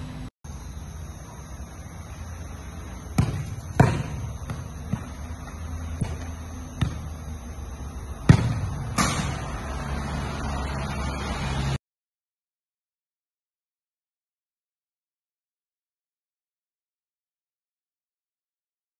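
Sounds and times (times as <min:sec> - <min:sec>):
football thuds on concrete: 0:03.2 - 0:07.2, 0:08.3 - 0:09.3.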